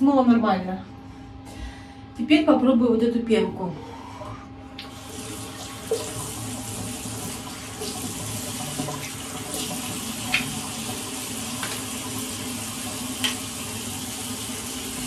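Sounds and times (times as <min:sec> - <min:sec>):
tap running into sink: 0:05.8 - 0:12.0, 0:12.8 - 0:13.6.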